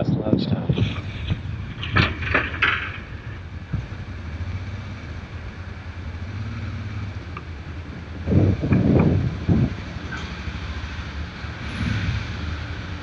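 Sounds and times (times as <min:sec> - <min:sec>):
wind noise on microphone: 0:00.0 - 0:04.1, 0:07.8 - 0:10.5
motorcycle engine running: 0:00.8 - 0:13.0.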